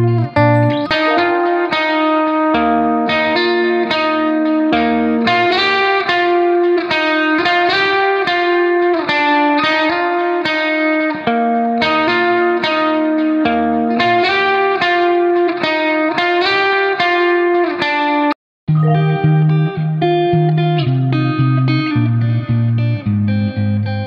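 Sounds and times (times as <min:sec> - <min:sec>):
low bass notes: 0:00.0 - 0:01.6
plucked notes repeating: 0:00.0 - 0:01.9, 0:18.7 - 0:20.0.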